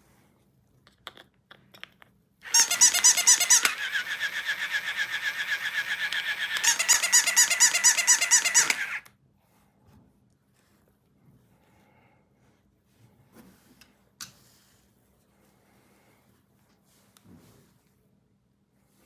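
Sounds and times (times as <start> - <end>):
toy pulsing electronic squeak: 2.4 - 9.0
plastic clicks of batteries: 5.8 - 9.1.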